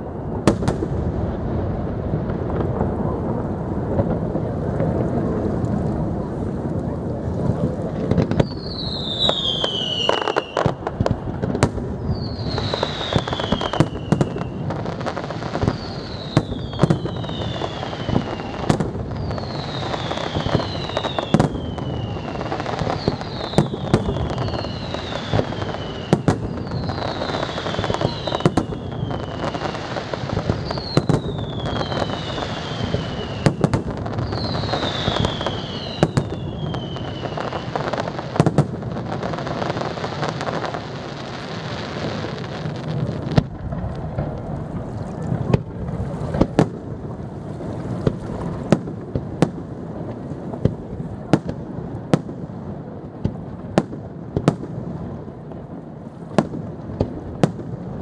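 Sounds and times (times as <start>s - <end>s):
firework bursts and bangs: 0.0s - 58.0s
fireworks crackling: 0.0s - 58.0s
falling firework whistles: 8.2s - 43.5s.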